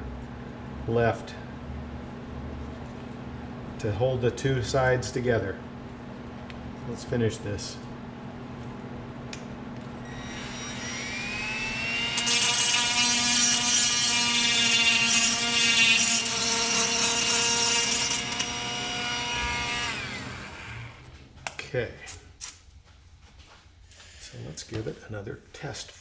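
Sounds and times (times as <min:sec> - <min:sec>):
rotary tool grinding: 0:10.1 - 0:21.1.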